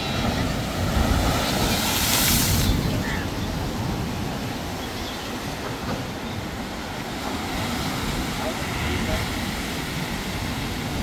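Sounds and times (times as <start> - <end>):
storm waves breaking on shore: 0.0 - 11.0
loud hissing wave splash: 0.7 - 3.1.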